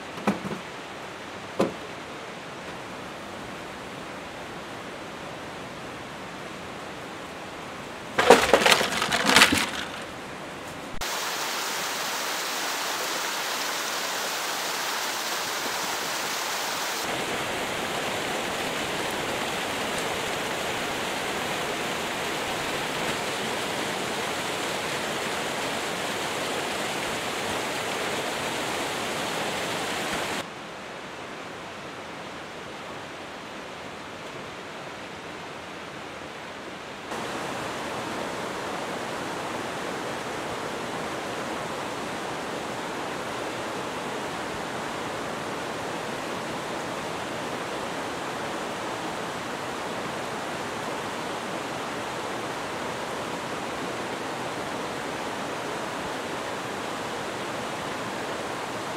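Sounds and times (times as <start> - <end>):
mountain stream rushing: 0.0 - 58.9.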